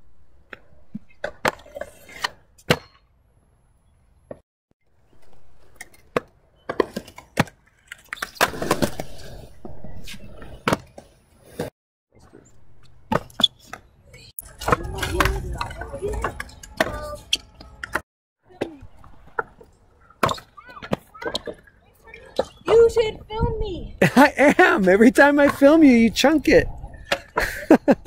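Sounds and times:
scooter rolling on concrete: 0:14.2 - 0:23.4.

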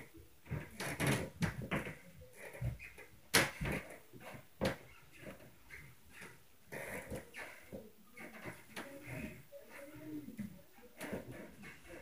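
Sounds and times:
thumps through ceiling: 0:00.0 - 0:05.4.

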